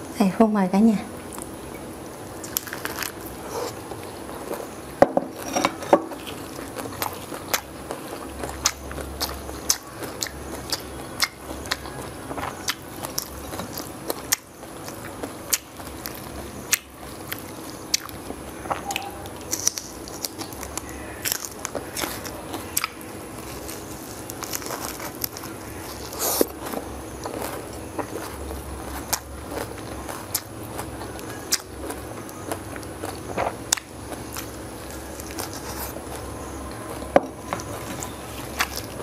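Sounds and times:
crunchy food chewing: 0:01.3 - 0:39.0.

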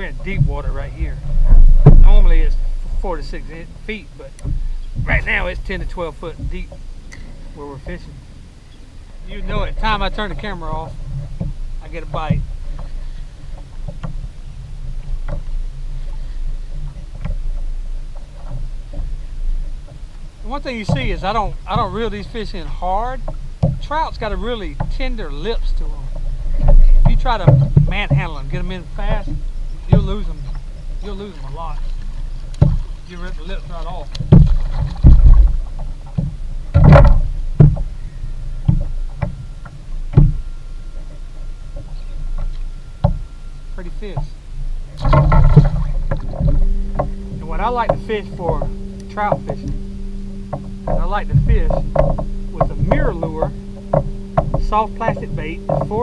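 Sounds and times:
knocks and thumps against a kayak: 0:00.0 - 0:08.2, 0:09.2 - 0:56.0
scuffle in a kayak: 0:00.0 - 0:48.5
water and wind rumble: 0:00.0 - 0:56.0.

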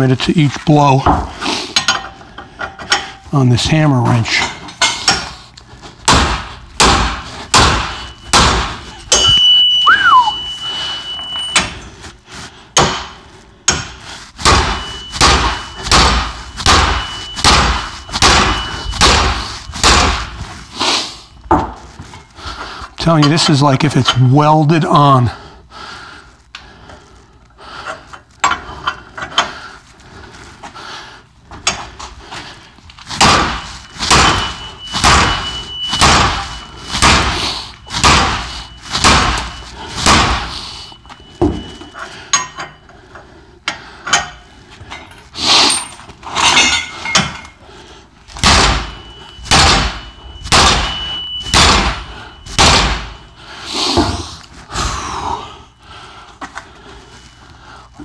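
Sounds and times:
sledgehammer striking steel: 0:06.0 - 0:10.0, 0:12.8 - 0:20.4, 0:33.2 - 0:40.6, 0:48.4 - 0:53.4.

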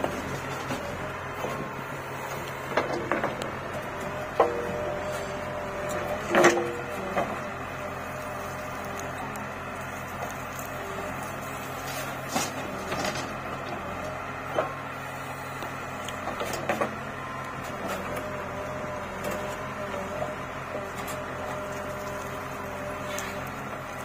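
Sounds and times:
diesel engine running: 0:00.0 - 0:24.0
sharp knocks and clunks: 0:02.7 - 0:04.7.

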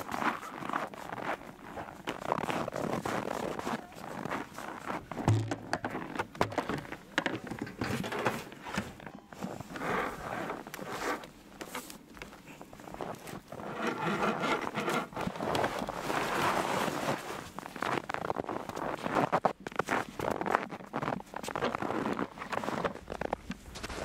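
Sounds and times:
packed snow crunching and scraping: 0:00.0 - 0:24.0
rope and clothing rustling: 0:00.0 - 0:24.0
plastic barrel thump on wood: 0:05.2 - 0:06.6.

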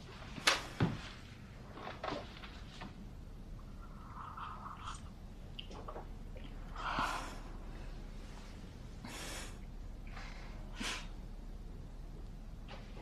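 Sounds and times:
woman breathing softly: 0:06.7 - 0:11.2.

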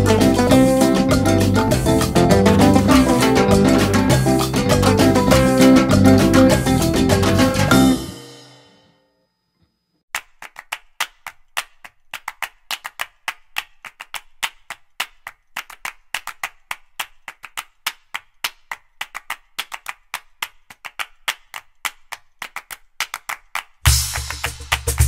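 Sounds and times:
rhythmic sharp claps: 0:00.0 - 0:08.2, 0:10.1 - 0:25.0.

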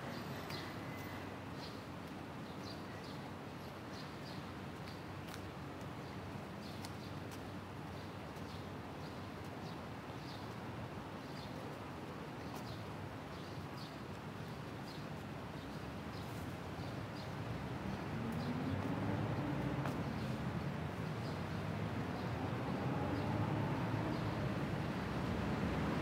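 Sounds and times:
traffic hum: 0:15.3 - 0:26.0
vehicle engine approaching: 0:18.0 - 0:20.6, 0:21.9 - 0:26.0
footsteps on pavement: 0:19.6 - 0:20.4.

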